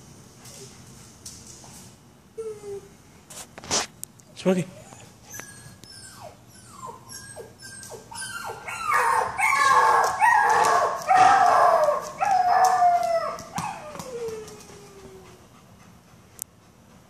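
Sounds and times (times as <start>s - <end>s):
recorded puppy crying: 2.4s - 2.9s, 4.6s - 15.4s.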